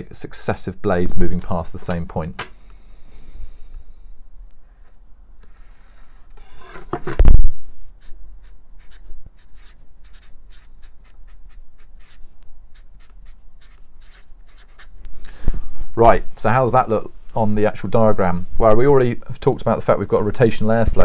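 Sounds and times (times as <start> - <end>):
marker writing on paper: 8.0 - 15.0.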